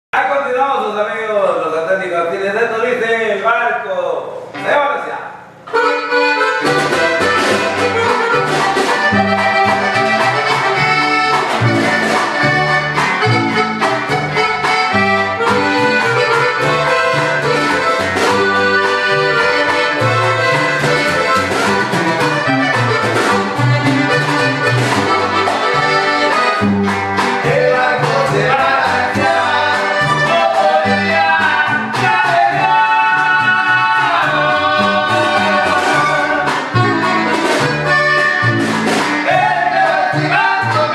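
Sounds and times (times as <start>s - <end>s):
button accordion melody: 5.5s - 40.9s
plucked upright bass: 5.6s - 40.9s
strummed acoustic guitar: 5.6s - 40.9s
snare drum: 38.6s - 39.4s.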